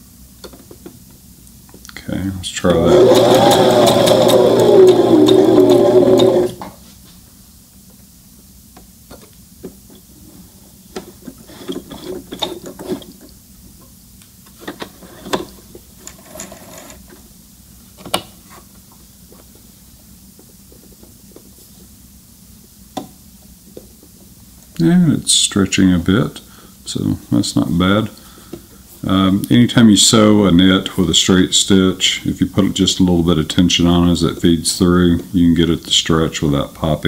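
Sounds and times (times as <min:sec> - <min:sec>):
faint steady hum: 0:00.0 - 0:37.0
sewing machine stitching: 0:02.8 - 0:06.7.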